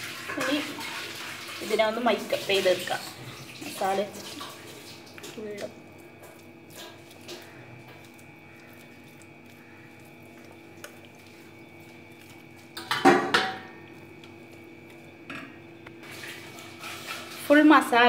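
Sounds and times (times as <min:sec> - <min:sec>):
low steady hum: 0:00.1 - 0:18.0
hands rubbing paste into chicken: 0:05.9 - 0:12.8
metal kitchenware clattering: 0:12.8 - 0:13.7.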